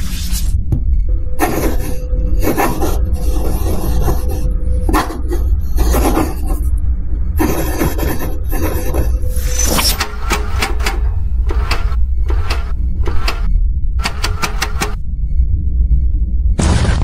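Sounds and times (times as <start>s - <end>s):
pen scratching on paper: 1.4s - 6.7s, 7.4s - 10.0s.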